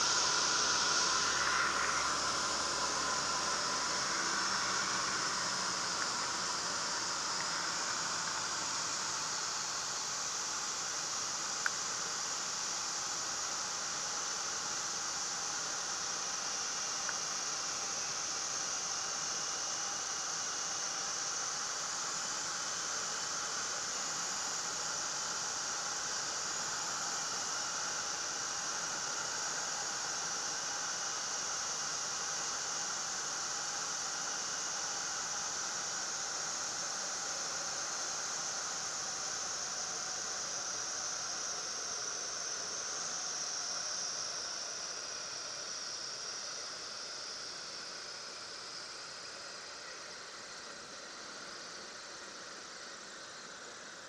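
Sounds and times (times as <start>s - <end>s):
plane engine drone: 0.0s - 10.6s.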